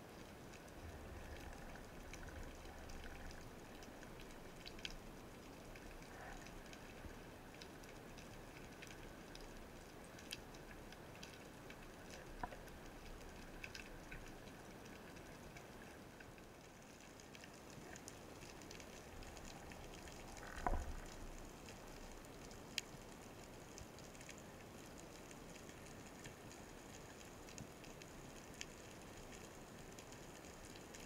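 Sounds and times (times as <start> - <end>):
underwater crackling and ticking: 0.0 - 31.0.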